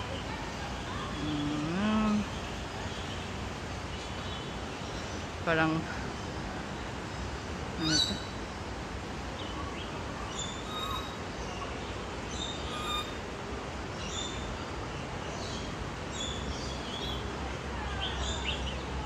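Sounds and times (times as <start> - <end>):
steady background noise: 0.0 - 19.0
birds chirping and whistling: 10.3 - 11.2, 12.3 - 13.2.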